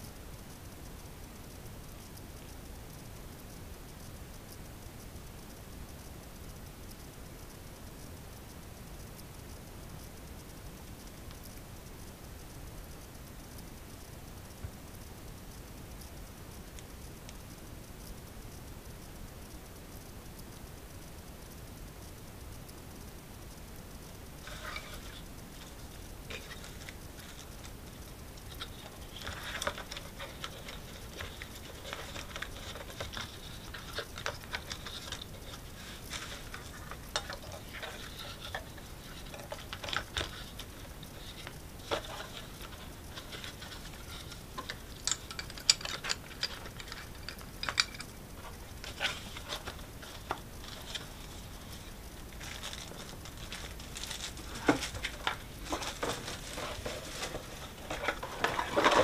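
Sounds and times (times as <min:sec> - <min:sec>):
handling cardboard and plastic device: 0:24.4 - 0:59.0.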